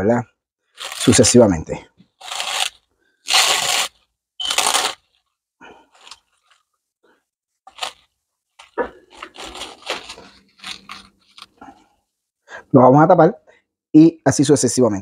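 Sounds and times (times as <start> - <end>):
cling film rustling: 2.0 - 6.8, 7.6 - 11.6
faint plastic crinkles: 2.1 - 12.0.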